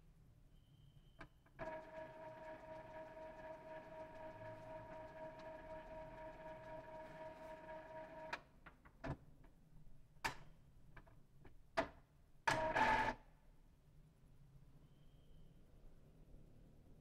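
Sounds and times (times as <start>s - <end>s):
printer motor whine: 1.6s - 8.3s, 12.5s - 13.2s.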